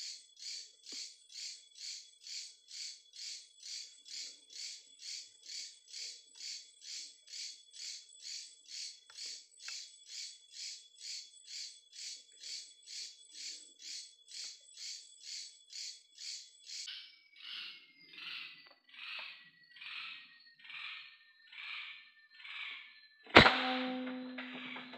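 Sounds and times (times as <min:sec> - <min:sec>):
insect pulsing high call: 0:00.0 - 0:16.9
insect steady high trill: 0:00.0 - 0:16.9.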